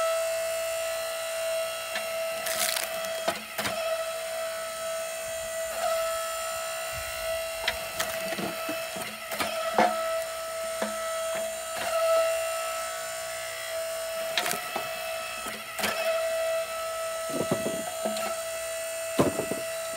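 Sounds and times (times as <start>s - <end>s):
log splitter motor whining: 0.0s - 19.9s
wood cracking and splitting: 2.0s - 3.9s, 7.2s - 11.4s, 14.3s - 14.9s, 17.3s - 18.4s, 19.1s - 19.9s.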